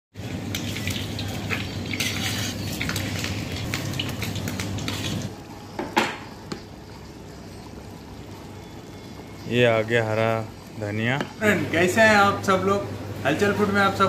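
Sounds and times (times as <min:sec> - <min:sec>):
frying noise: 0:00.1 - 0:14.0
metal utensils clinking on cookware: 0:00.5 - 0:05.2.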